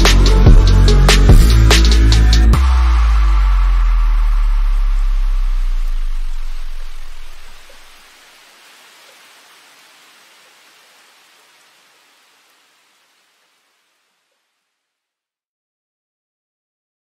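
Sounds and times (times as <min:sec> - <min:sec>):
background music: 0:00.0 - 0:07.6
rain-like hiss: 0:00.0 - 0:15.0.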